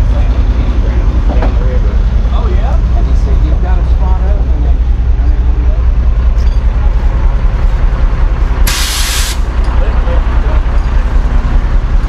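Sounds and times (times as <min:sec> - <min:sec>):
truck engine rumbling: 0:00.0 - 0:12.0
air release hiss: 0:08.6 - 0:09.5.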